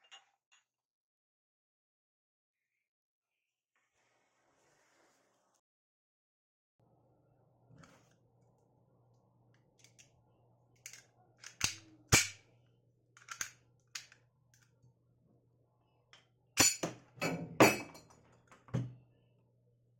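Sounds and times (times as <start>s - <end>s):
pistol metallic clicks and clacks: 10.9s - 12.4s, 13.2s - 14.1s.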